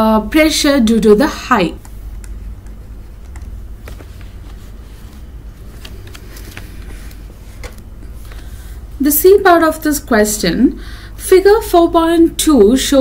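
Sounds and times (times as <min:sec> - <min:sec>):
steady low hum: 0:00.0 - 0:13.0
stylus tapping on tablet screen: 0:01.8 - 0:04.3.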